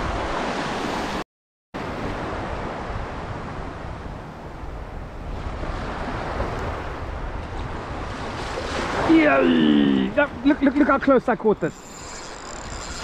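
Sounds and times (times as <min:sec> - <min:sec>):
ocean surf lapping: 0:01.8 - 0:10.9.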